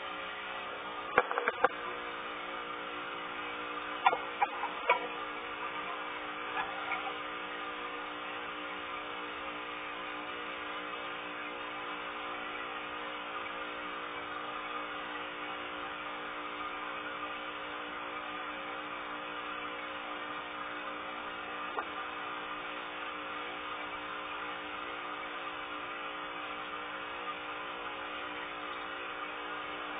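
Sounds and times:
aquarium filter hum and hiss: 0.0 - 29.9.

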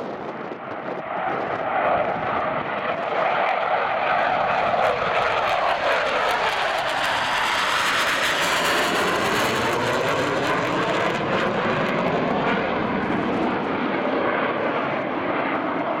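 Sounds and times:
fighter jets roaring overhead: 0.0 - 16.0.

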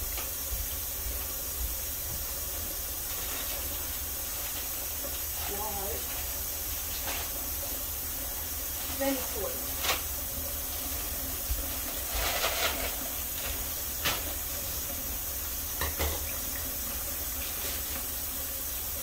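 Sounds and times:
water running from tap: 0.0 - 19.0
knocks in sink: 15.8 - 16.3.

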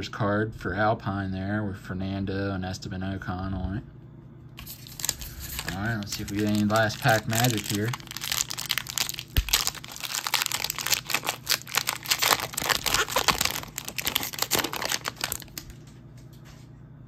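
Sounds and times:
foil wrapper crinkling and tearing: 4.6 - 15.8.

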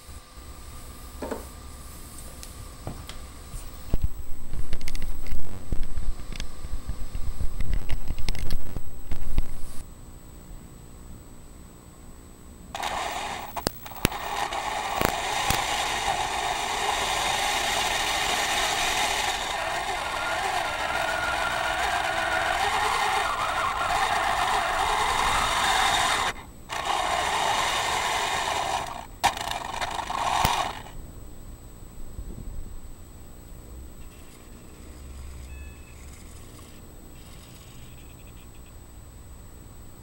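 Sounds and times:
sharp clicks: 12.8 - 16.2, 28.5 - 30.9
toy tank motors whirring: 12.8 - 31.0, 34.1 - 38.5.

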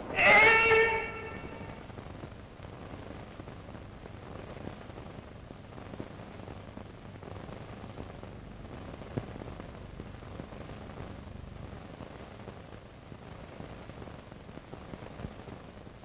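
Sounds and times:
faint crackles: 0.0 - 16.0
film soundtrack hiss and hum: 0.0 - 16.0.

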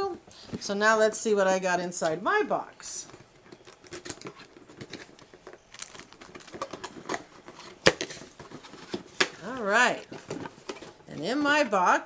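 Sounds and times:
packaging rustling: 3.0 - 11.1.

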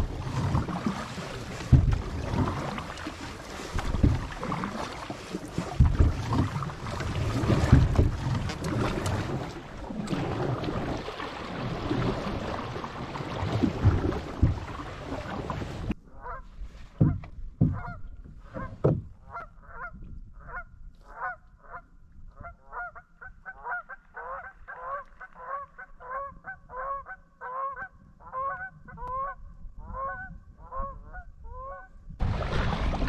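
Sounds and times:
low thumps: 1.6 - 2.6, 5.7 - 6.5, 16.9 - 19.2.

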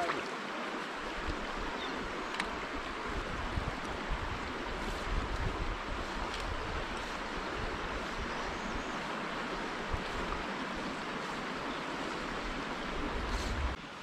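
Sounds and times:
stream running over rocks: 0.0 - 14.0
wind rumble on microphone: 1.2 - 11.0, 12.3 - 13.8.

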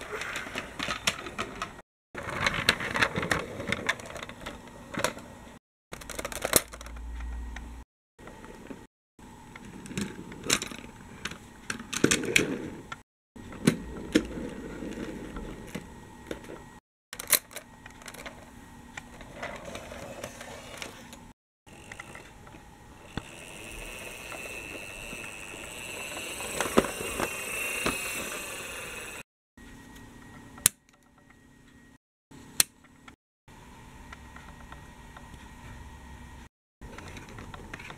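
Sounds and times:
toy vehicles rattling on plastic track: 6.0 - 6.9, 21.7 - 29.2
whirring with high whine: 18.6 - 32.0.

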